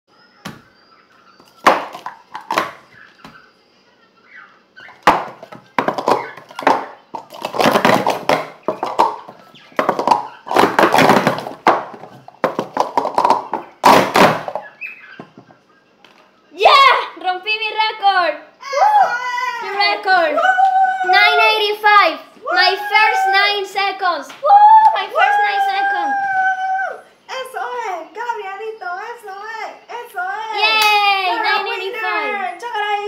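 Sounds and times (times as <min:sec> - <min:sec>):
plastic cups clattering on table: 0:01.6 - 0:02.8, 0:04.9 - 0:15.5.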